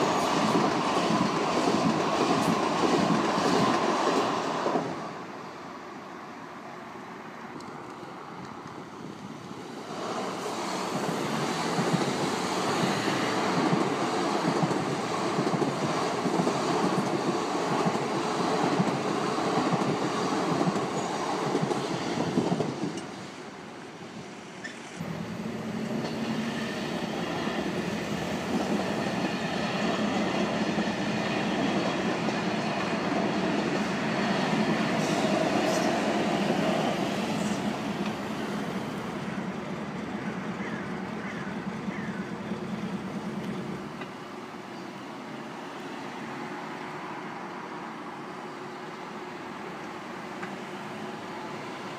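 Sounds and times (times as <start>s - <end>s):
train wheels rattling over rails: 0.0s - 5.2s, 9.7s - 23.4s, 24.6s - 44.2s
train humming: 0.0s - 51.9s.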